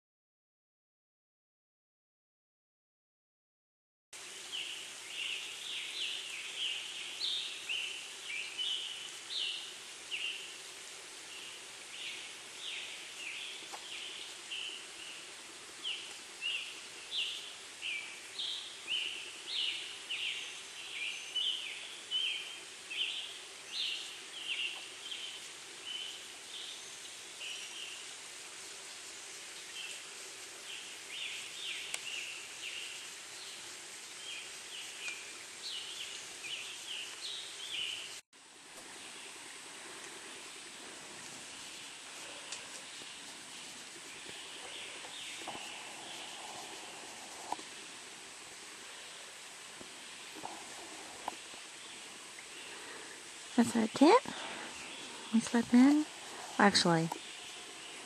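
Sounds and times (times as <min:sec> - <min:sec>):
forest birds chirping: 0:04.2 - 0:58.0.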